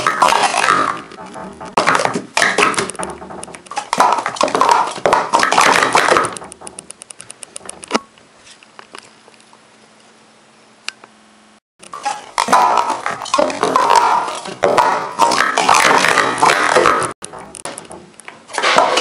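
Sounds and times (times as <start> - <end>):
plastic cups clattering: 0.0 - 6.8, 11.9 - 19.0.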